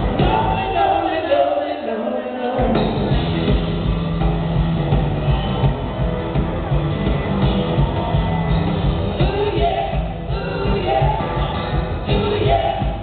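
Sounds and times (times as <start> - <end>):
upright bass: 0.0 - 1.3, 2.6 - 13.0
man singing: 0.0 - 3.2, 9.2 - 13.0
muffled live rock band: 0.0 - 13.0.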